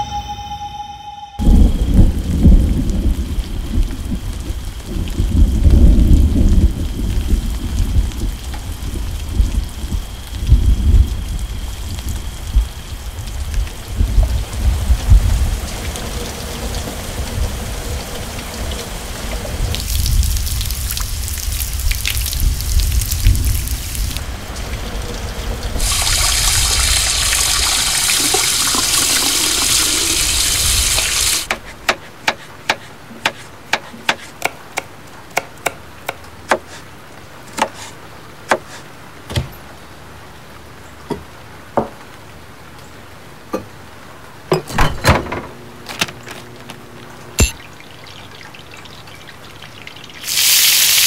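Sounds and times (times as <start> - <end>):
rain falling: 1.4 - 31.6, 34.6 - 44.5, 45.5 - 51.0
kitchen tap running: 23.2 - 31.6, 47.4 - 51.0.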